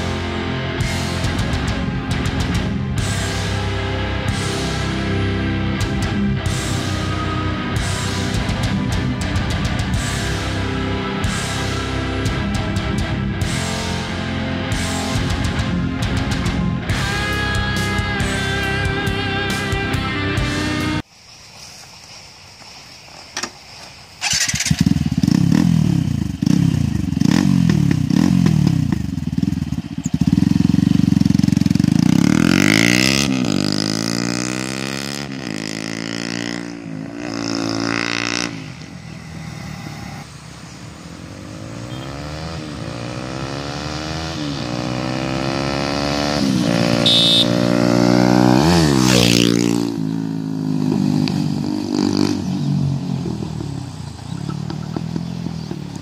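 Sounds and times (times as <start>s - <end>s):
motorcycle accelerating and upshifting: 0.0s - 21.0s, 24.2s - 56.0s
motorcycle engine rumbling: 0.0s - 56.0s
motorcycle passing by: 24.2s - 56.0s.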